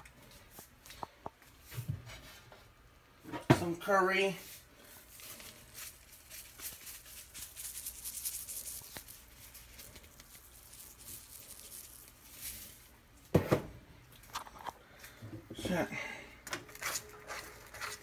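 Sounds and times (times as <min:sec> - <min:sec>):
spice shaker rattling: 0:05.1 - 0:12.9.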